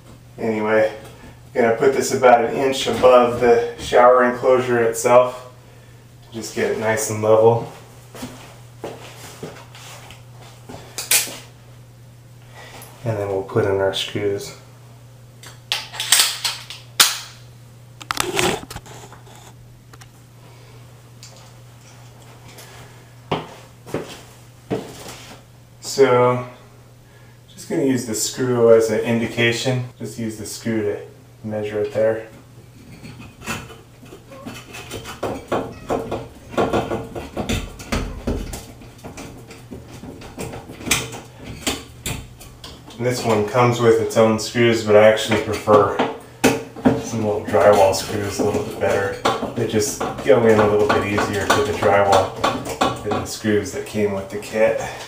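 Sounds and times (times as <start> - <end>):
steady low hum: 0.0 - 55.0
hardware clicks and knocks: 32.9 - 43.0.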